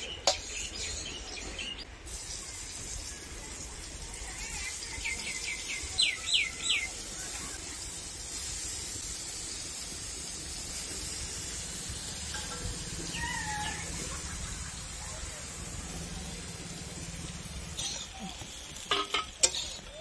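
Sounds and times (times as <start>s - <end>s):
soft wavering bird call: 12.4s - 14.7s.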